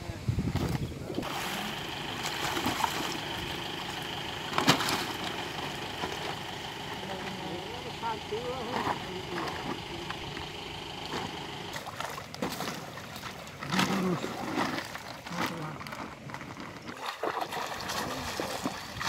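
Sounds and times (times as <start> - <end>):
voices: 0.0 - 11.9
water splashing and sloshing: 0.5 - 19.0.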